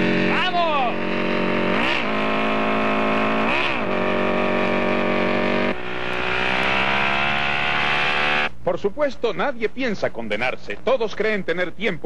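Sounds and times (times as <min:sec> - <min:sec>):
motorcycle engine running: 0:00.0 - 0:08.5.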